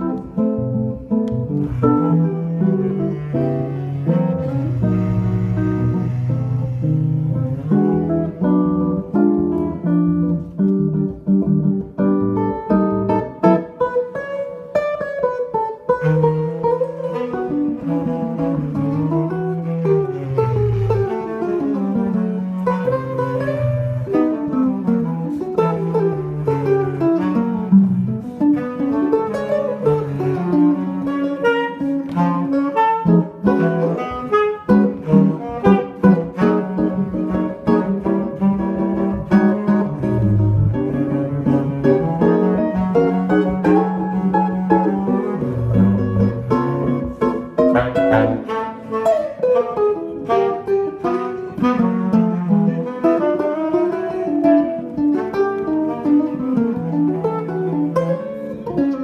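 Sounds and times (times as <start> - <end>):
tenor saxophone melody: 0.0 - 10.6, 12.6 - 59.0
jazz guitar chords: 0.0 - 59.0.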